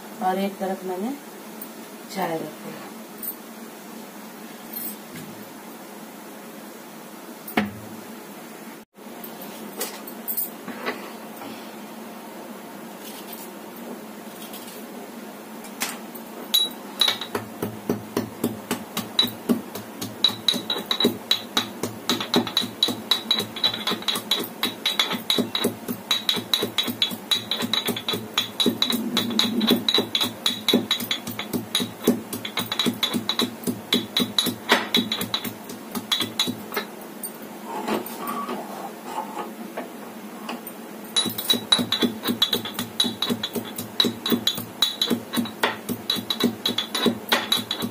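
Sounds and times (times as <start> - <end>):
metal pestle pounding in mortar: 16.6 - 36.8, 41.2 - 47.9.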